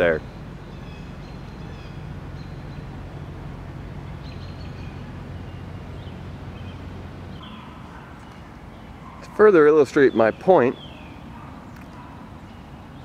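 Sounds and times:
steady low rumble: 0.0 - 9.2
faint bird chirps: 4.0 - 9.4.

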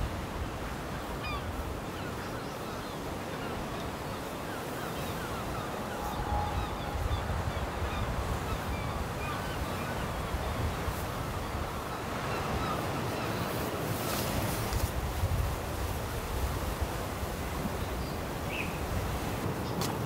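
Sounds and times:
sea surf: 0.0 - 20.0
wind: 0.0 - 20.0.

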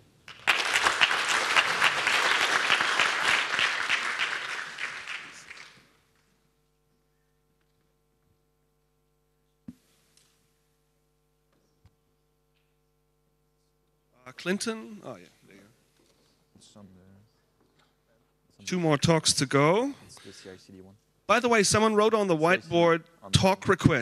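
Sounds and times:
faint steady hum: 0.0 - 24.0
audience applauding: 0.3 - 5.9.

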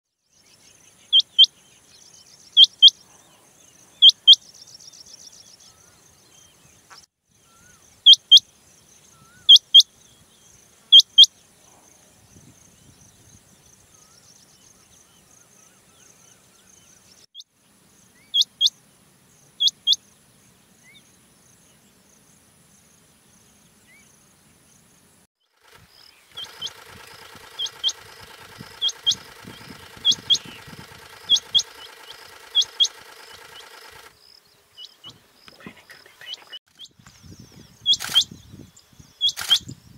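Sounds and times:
quail calling: 4.0 - 4.4, 26.3 - 34.1
engine running: 25.5 - 34.2.

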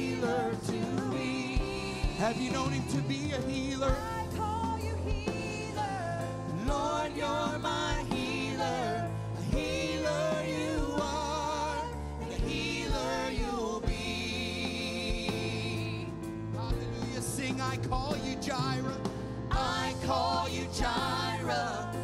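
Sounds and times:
bass guitar: 0.0 - 22.0
keyboard: 0.0 - 22.0
people singing with vibrato: 0.0 - 22.0.

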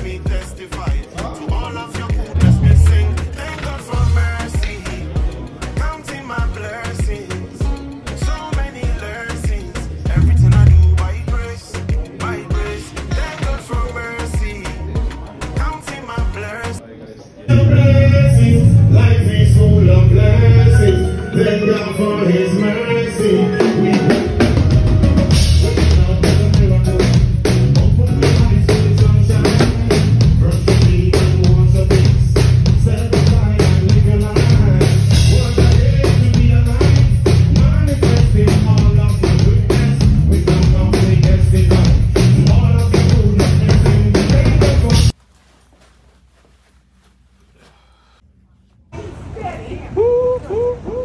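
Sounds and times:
drum kit: 0.0 - 16.4, 23.6 - 45.2
heavy bass line: 2.2 - 5.4, 9.8 - 11.7, 17.5 - 22.4, 24.0 - 45.1
instrumental band music: 2.4 - 4.9, 10.1 - 11.9, 17.5 - 45.1.

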